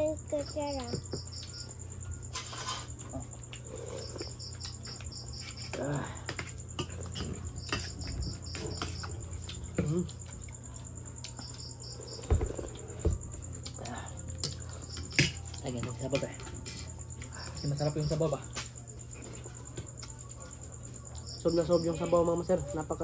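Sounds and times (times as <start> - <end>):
insects chirping: 0.0 - 23.0
cutlery clinking on plates: 5.4 - 9.9, 14.4 - 16.9.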